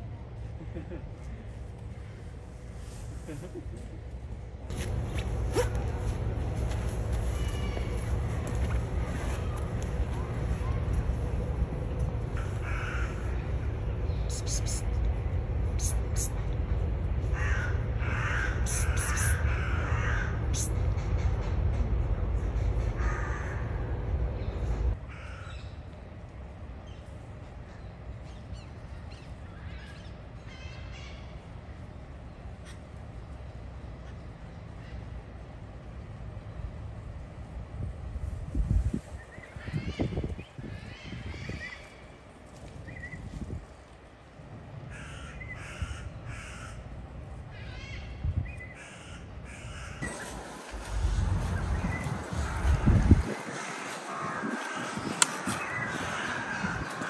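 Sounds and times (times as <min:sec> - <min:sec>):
crow-like caws: 0:12.4 - 0:13.4, 0:17.3 - 0:20.4, 0:23.0 - 0:23.8, 0:25.1 - 0:25.6, 0:44.9 - 0:46.9, 0:48.8 - 0:50.0, 0:53.8 - 0:57.0
loud low rumble: 0:49.6 - 0:57.0
bird calls: 0:53.6 - 0:57.0.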